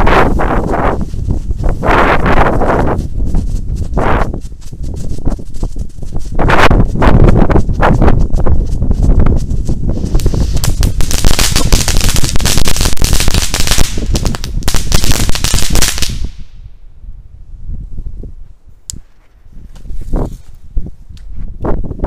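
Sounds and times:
ground firework crackling: 5.2 - 16.6.

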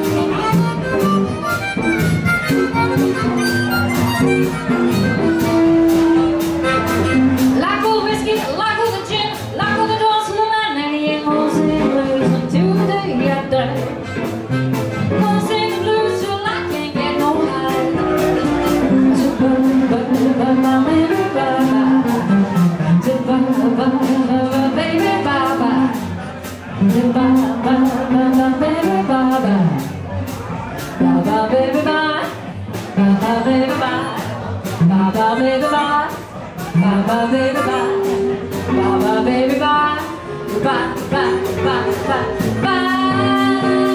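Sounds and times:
drum beat: 0.0 - 8.5
electric and acoustic guitars: 0.0 - 30.0, 30.9 - 43.9
gliding lead melody: 37.1 - 43.9.

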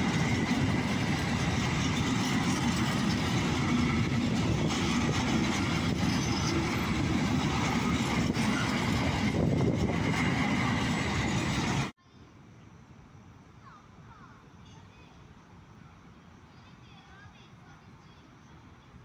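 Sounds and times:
freight train rolling past: 0.0 - 12.0.

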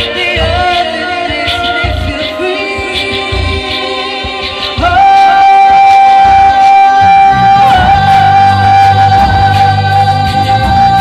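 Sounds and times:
woman singing through amplifier: 0.0 - 11.0
electric bass guitar: 7.0 - 11.0.

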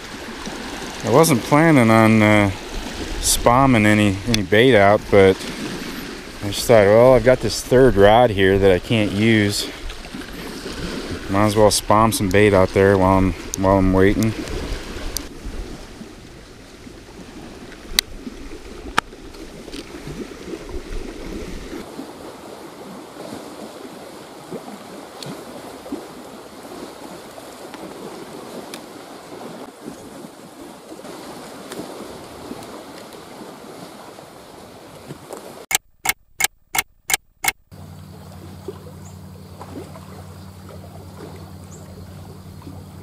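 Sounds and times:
waves washing against rocks: 0.0 - 35.7
wind: 0.0 - 43.0
sharp clicks: 35.7 - 37.7.

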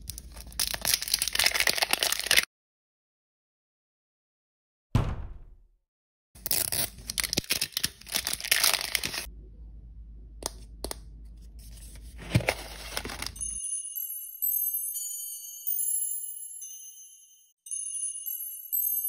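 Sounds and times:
plastic wrap crinkling: 0.0 - 2.5, 6.5 - 9.3, 12.2 - 13.6.

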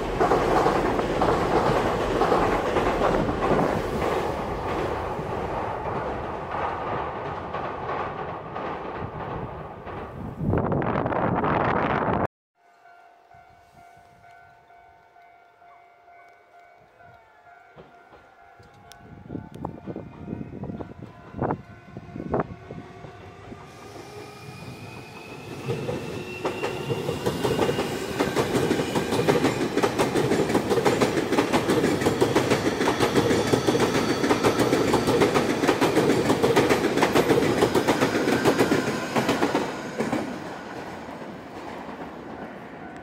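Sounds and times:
train wheels clicking over rail joints: 0.0 - 10.4, 25.0 - 42.1.

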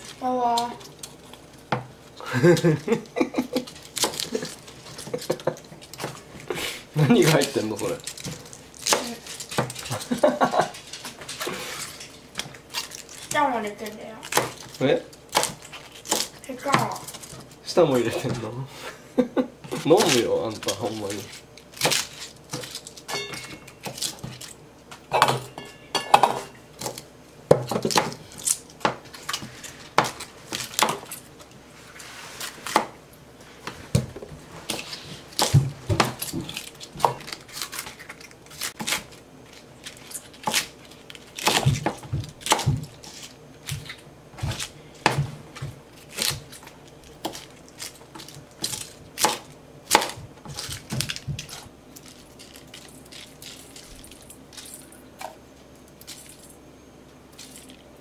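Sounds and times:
knife chopping on cutting board: 26.2 - 28.2, 32.6 - 33.0, 41.4 - 42.9, 43.7 - 46.5, 48.1 - 51.6.

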